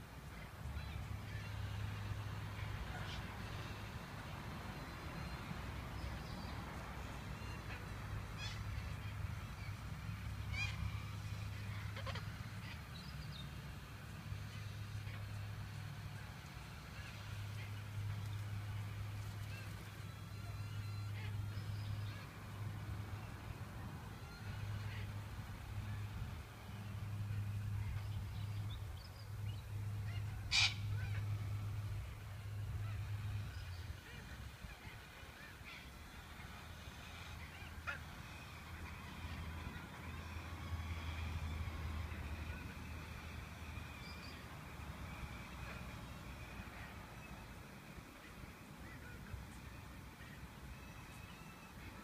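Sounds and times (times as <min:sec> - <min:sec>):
parrots squawking: 0:30.5 - 0:31.2.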